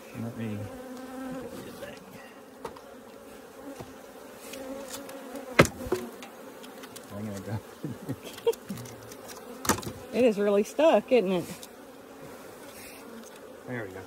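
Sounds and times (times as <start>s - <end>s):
honeybees buzzing: 0.0s - 14.0s
sharp knock: 5.6s - 6.1s.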